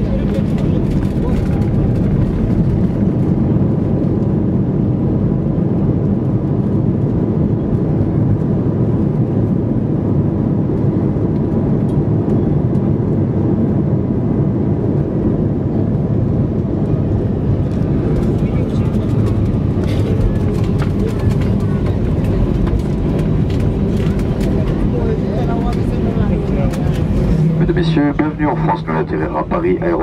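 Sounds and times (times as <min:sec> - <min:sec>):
airliner rumbling on runway: 0:00.0 - 0:30.0.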